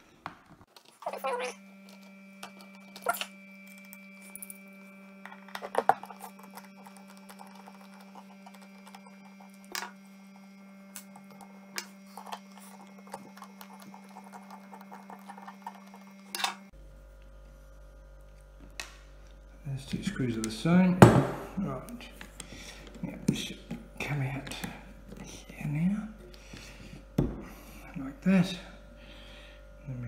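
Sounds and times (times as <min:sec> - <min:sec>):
faint steady hum: 0:00.0 - 0:30.0.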